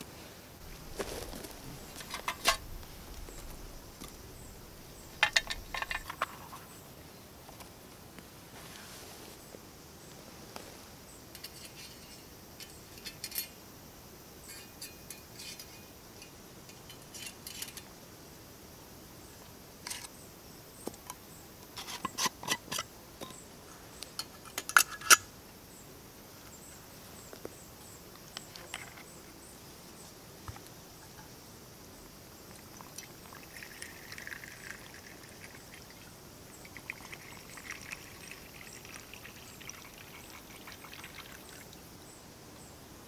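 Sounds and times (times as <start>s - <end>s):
small metal clicks and clinks: 5.2s - 6.6s, 11.4s - 13.6s, 14.4s - 17.9s.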